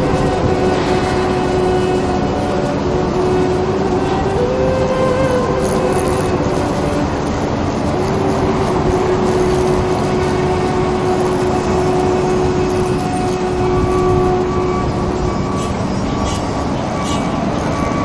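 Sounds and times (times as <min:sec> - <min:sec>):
droning hum: 0:00.0 - 0:18.0
mechanical rumble: 0:00.0 - 0:18.0.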